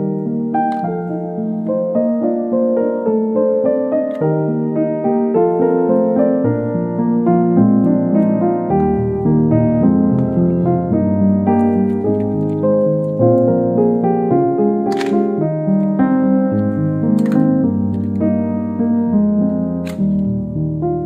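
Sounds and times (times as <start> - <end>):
keyboard music: 0.0 - 21.0.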